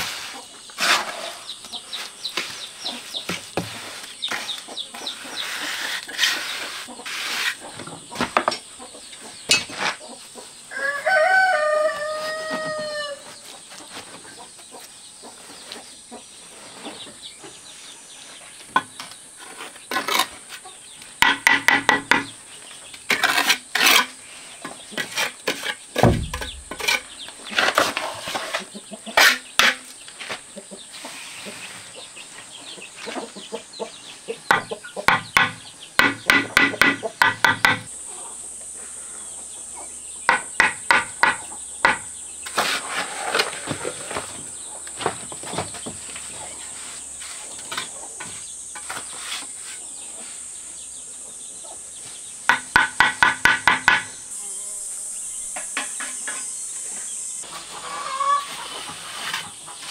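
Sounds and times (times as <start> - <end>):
rooster crowing: 10.7 - 13.3
tool tapping bricks into mortar: 21.2 - 22.4, 25.0 - 27.1, 34.5 - 37.9, 40.3 - 42.1, 52.5 - 54.2
dull thump: 26.0 - 26.9.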